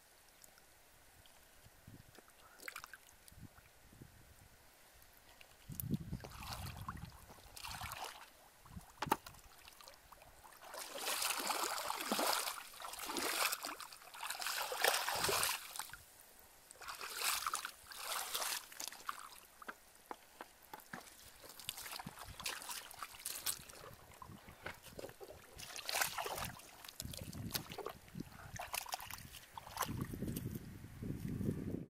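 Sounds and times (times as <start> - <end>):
feet sloshing through water: 5.4 - 16.0, 16.8 - 19.6, 20.9 - 30.2.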